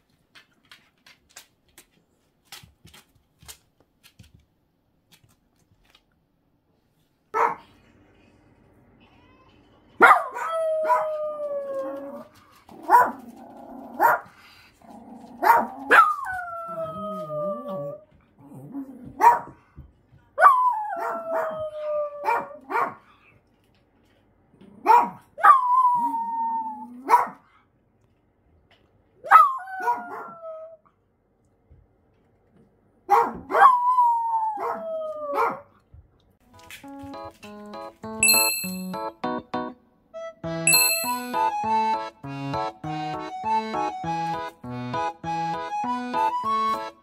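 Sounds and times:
dog howling: 10.3s - 12.3s, 15.5s - 18.0s, 20.4s - 22.7s, 25.5s - 27.1s
dog yipping: 29.3s - 30.3s, 33.1s - 33.9s.

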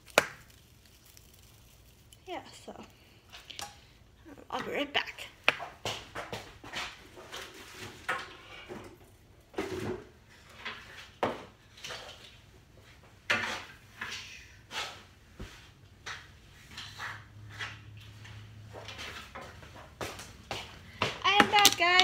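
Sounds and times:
objects knocking and rattling: 5.6s - 12.1s, 21.0s - 22.0s.

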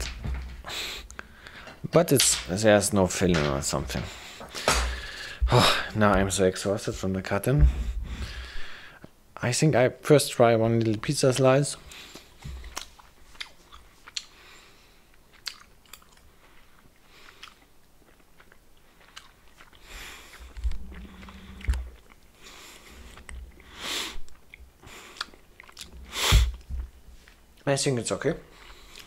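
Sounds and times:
person chewing gummy candy: 11.9s - 27.6s
wet mouth clicks and smacks: 15.4s - 16.3s, 24.2s - 26.7s.

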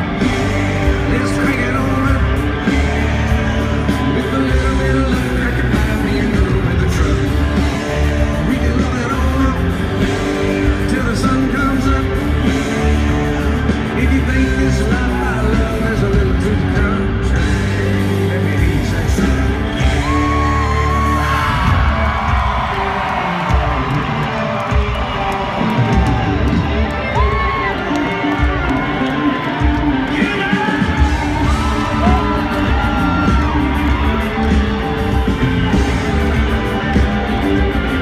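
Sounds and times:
man singing lead vocal: 0.0s - 22.3s, 30.1s - 35.2s
live country-rock band: 0.0s - 38.0s.

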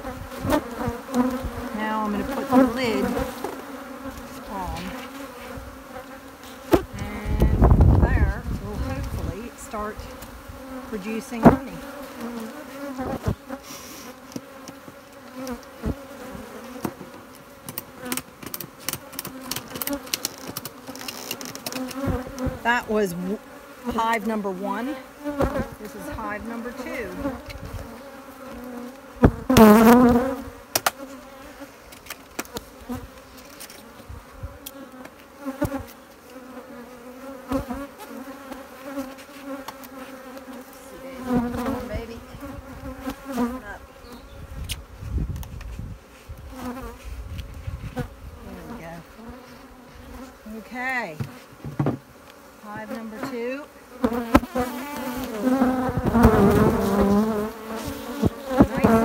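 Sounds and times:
bees flying past: 0.0s - 59.0s
honeybees droning: 0.0s - 59.0s
hive lid clicks and knocks: 30.7s - 31.0s, 51.2s - 52.4s.

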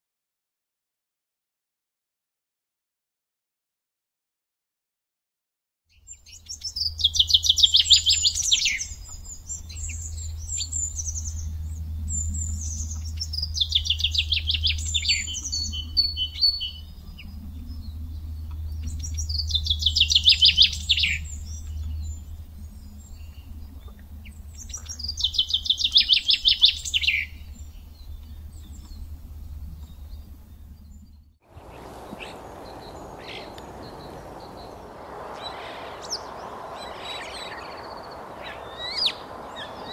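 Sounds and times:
low steady rumble: 29.1s - 39.9s
faint steady hiss: 31.5s - 39.9s
kite calling trill: 31.5s - 39.9s.

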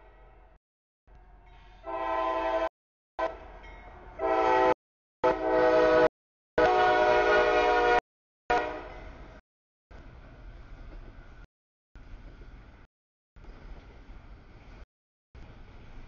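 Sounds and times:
locomotive air horn blasts: 1.8s - 3.6s, 4.2s - 9.1s.

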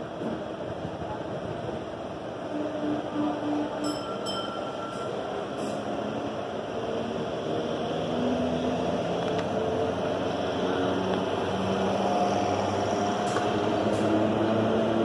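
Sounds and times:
electric train rumbling drone: 0.0s - 15.0s.

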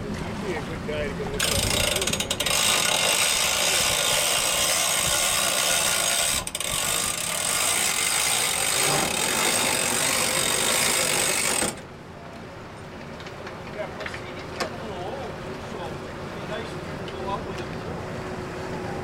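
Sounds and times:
outboard motor running hard: 0.0s - 12.0s
propeller churning water: 0.0s - 12.8s, 13.5s - 19.0s.

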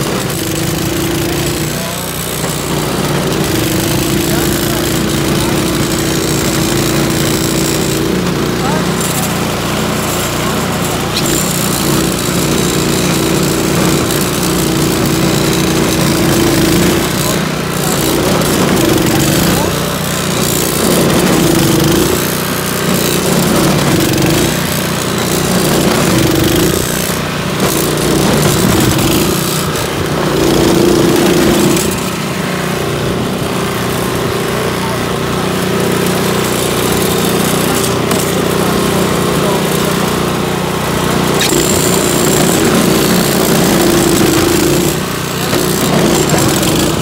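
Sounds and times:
auger churning snow: 0.0s - 47.0s
snow blower engine running: 0.0s - 47.0s.

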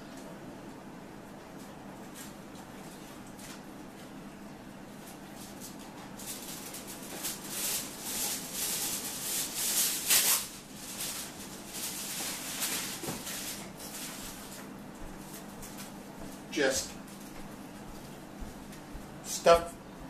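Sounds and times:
aluminium foil crinkling: 5.0s - 14.7s.

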